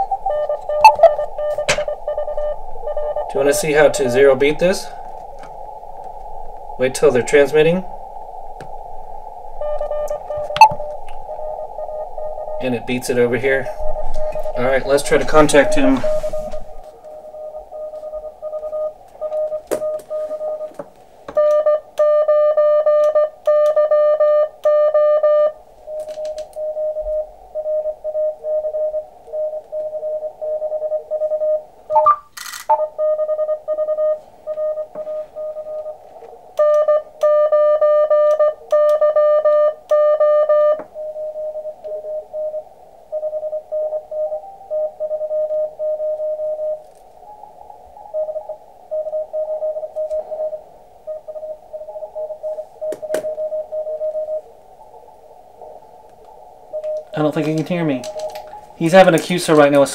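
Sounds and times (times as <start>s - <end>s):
morse code tones: 0.0s - 8.0s, 9.5s - 59.9s
burst of radio noise: 0.0s - 18.4s.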